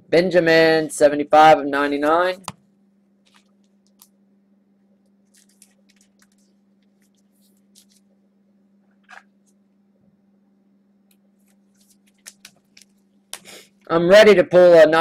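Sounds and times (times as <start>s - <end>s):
faint hum: 0.0s - 15.0s
cards rustling and clicking: 3.3s - 4.1s, 5.3s - 8.1s, 11.4s - 13.5s.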